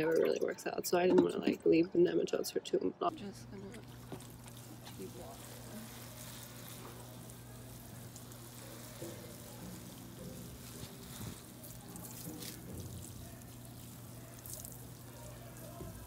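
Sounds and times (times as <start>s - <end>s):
hose spray spattering water: 3.7s - 16.0s.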